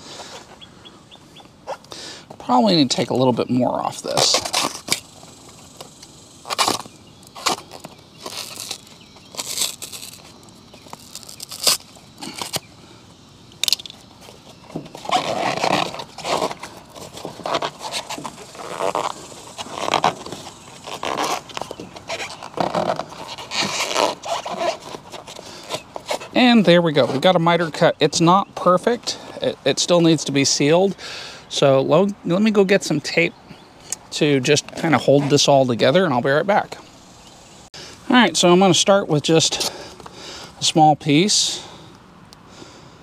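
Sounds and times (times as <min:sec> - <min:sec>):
foam scraping and rubbing: 0:04.1 - 0:05.1, 0:06.4 - 0:12.6, 0:14.2 - 0:27.3.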